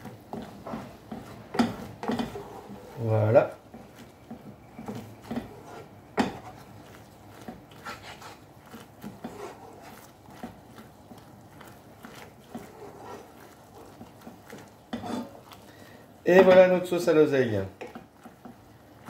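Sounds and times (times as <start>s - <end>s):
wooden spoon scraping a pan: 0.0s - 19.0s
spoon knocking on pan: 0.4s - 2.4s, 4.3s - 6.6s.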